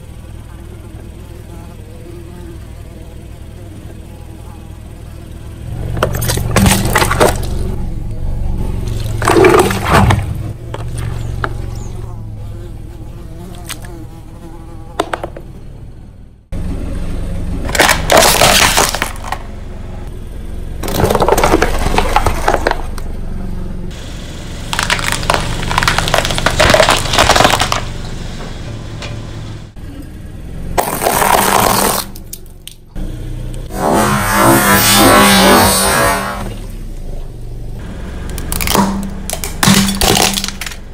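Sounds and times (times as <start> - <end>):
car engine idling: 0.0 - 40.9
tyre crushing objects: 6.0 - 7.7, 8.8 - 11.7, 17.7 - 19.4, 20.8 - 23.0, 24.7 - 27.9, 30.8 - 32.2, 38.5 - 40.8
plastic bulbs breaking: 17.7 - 19.4, 24.7 - 27.9, 30.8 - 32.8, 38.3 - 40.9
metal tin being flattened: 24.8 - 27.8.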